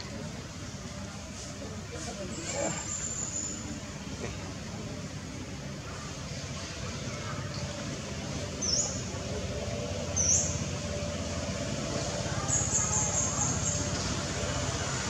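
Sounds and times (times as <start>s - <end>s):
outdoor rumble and hiss: 0.0s - 15.0s.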